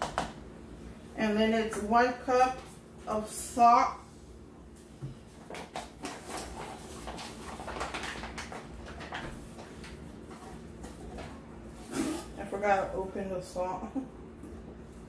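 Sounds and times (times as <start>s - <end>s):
paper bag rustling: 5.8s - 12.4s.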